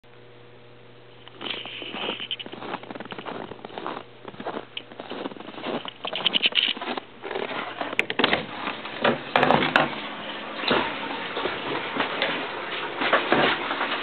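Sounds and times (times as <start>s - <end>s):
scuffing and handling noise: 1.2s - 8.9s
footsteps crunching in snow: 1.3s - 8.8s.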